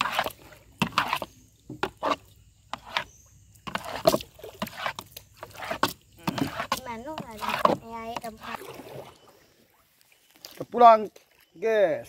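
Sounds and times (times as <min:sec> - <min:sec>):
water splashes: 0:00.0 - 0:12.0
wooden canoe knocks: 0:00.8 - 0:02.1, 0:03.6 - 0:08.5.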